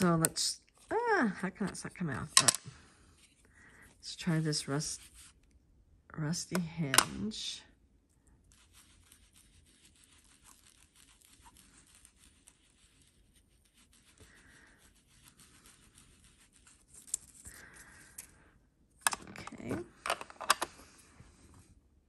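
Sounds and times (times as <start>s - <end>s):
ink applicator scrubbing paper: 4.2s - 5.4s, 8.5s - 17.4s.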